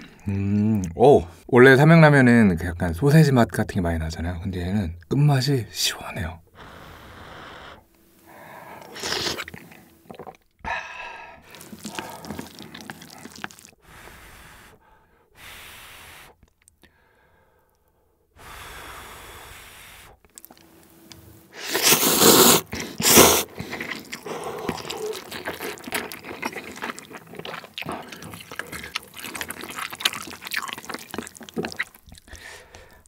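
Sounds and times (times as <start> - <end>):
slurping noodles: 8.8 - 10.4, 11.4 - 14.8, 21.5 - 32.7
chewing: 8.8 - 10.6, 11.4 - 13.8, 20.2 - 20.7, 21.7 - 33.0.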